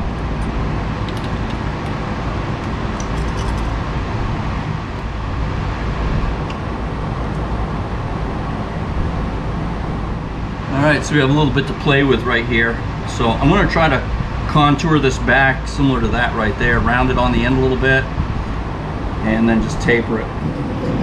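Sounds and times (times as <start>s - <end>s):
machinery hum and hiss: 0.0s - 21.0s
faint light clicks of parts: 0.4s - 2.0s.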